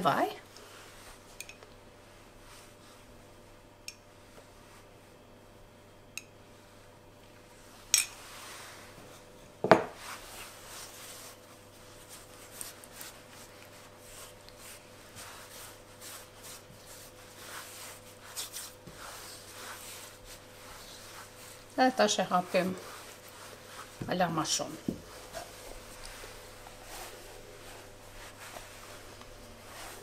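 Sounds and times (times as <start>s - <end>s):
hands rubbing pastry dough: 0.1s - 1.3s, 7.7s - 30.0s
object knocking on wooden worktop: 9.6s - 9.9s.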